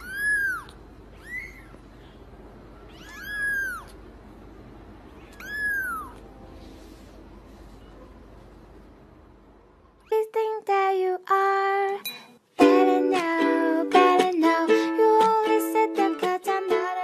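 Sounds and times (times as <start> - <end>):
cat meowing: 0.0 - 1.9, 2.8 - 4.0, 5.2 - 6.3.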